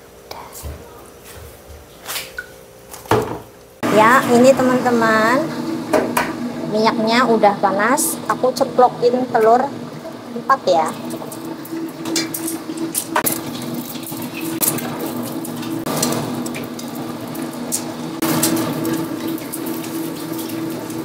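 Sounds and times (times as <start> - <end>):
eggs sizzling in hot oil: 9.7 - 21.0
sharp oil crackles: 10.9 - 21.0.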